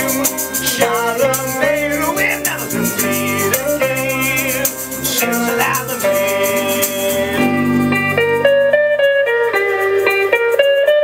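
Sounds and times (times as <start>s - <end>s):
fast rattling percussion: 0.0s - 11.0s
guitar: 0.0s - 11.0s
live band music: 0.0s - 11.0s.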